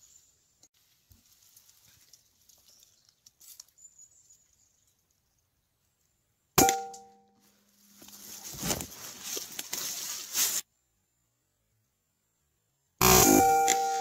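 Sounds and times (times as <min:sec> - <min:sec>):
metallic ring: 0:06.6 - 0:07.3, 0:13.0 - 0:14.0.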